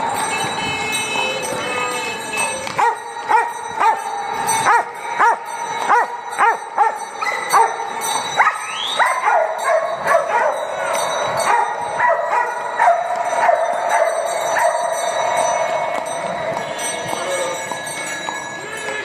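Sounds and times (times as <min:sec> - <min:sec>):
dog barking in tunnel: 0:08.4 - 0:10.8, 0:11.5 - 0:14.8.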